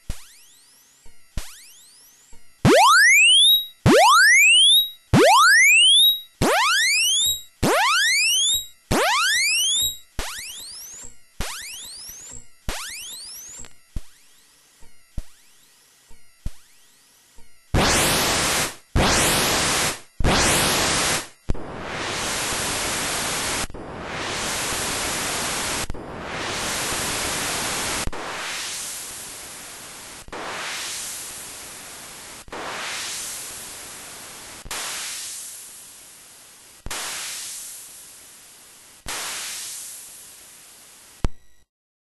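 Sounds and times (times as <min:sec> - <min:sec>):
synthesized hiss bursts: 0:17.8 - 0:36.2, 0:36.8 - 0:38.4, 0:39.0 - 0:40.8.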